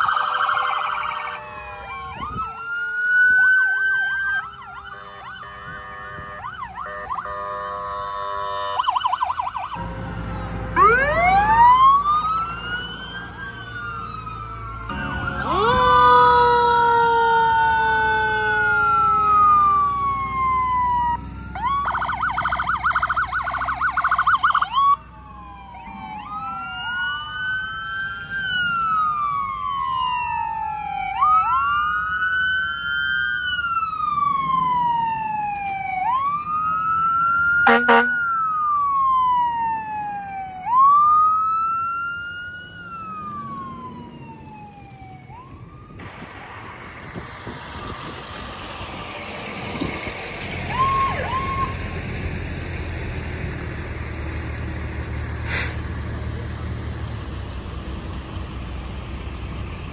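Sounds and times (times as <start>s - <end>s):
fast siren yelp: 0.0s - 9.8s, 10.8s - 46.4s, 50.6s - 51.9s
emergency sirens wailing: 0.0s - 59.9s
low engine rumble: 9.0s - 59.9s.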